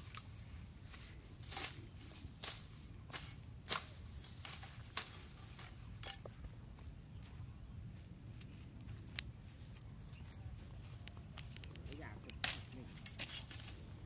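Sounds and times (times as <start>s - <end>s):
digging tool striking sandy ground: 2.4s - 6.4s.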